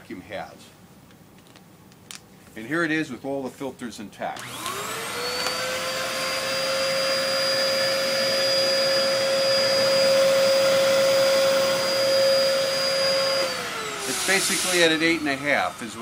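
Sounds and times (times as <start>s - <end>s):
vacuum cleaner running: 4.4s - 16.0s.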